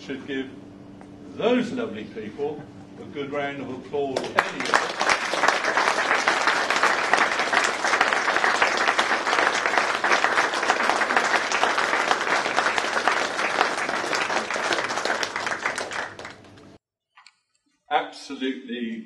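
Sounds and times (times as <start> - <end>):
people applauding: 4.2 - 16.8.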